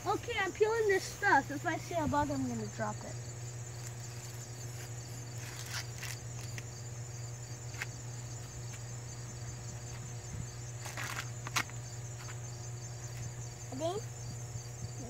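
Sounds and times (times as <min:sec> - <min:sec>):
insects chirring: 0:00.0 - 0:15.0
corn husk tearing: 0:05.3 - 0:06.7.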